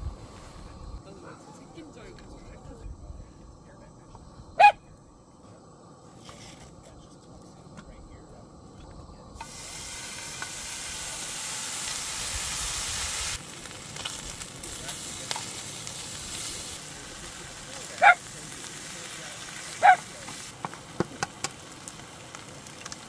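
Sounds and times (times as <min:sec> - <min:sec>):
bacon sizzling in a frying pan: 0:09.4 - 0:23.0.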